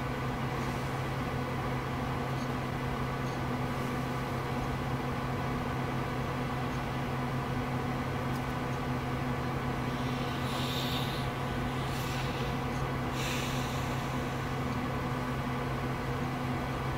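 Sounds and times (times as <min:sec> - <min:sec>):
steady low hum: 0:00.0 - 0:16.9
breathy rush of noise: 0:09.8 - 0:14.6
even hiss: 0:09.8 - 0:14.6.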